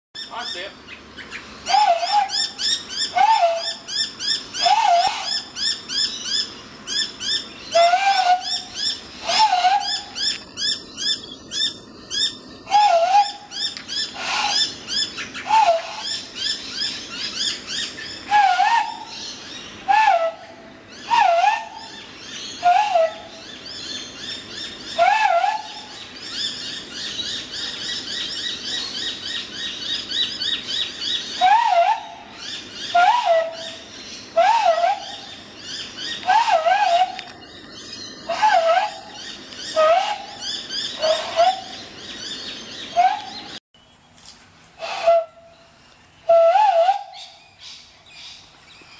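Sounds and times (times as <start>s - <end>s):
many birds chirping: 0.2s - 20.2s, 20.9s - 43.6s
hand-blown hooting bird call: 1.6s - 6.1s, 7.2s - 16.5s, 18.2s - 23.6s, 24.9s - 26.1s, 31.3s - 35.4s, 36.0s - 37.4s, 38.3s - 41.8s, 42.9s - 43.6s, 44.8s - 45.6s, 46.2s - 47.4s.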